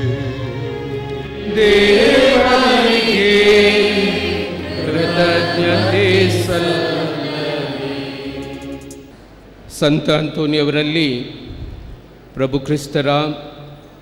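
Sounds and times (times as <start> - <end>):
voices singing a slow chant: 1.4 - 9.1.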